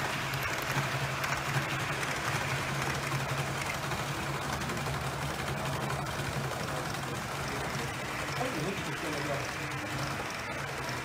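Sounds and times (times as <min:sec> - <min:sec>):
metal wheels rolling on rails: 0:00.0 - 0:11.0
model train motor hum: 0:00.0 - 0:11.0.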